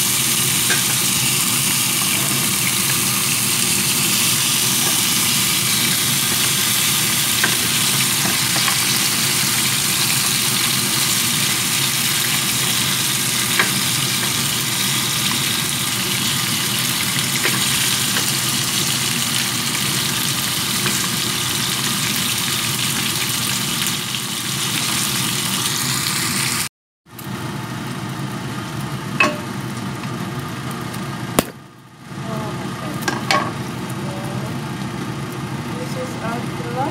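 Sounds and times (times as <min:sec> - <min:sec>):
fish sizzling in hot oil: 0:00.0 - 0:26.7.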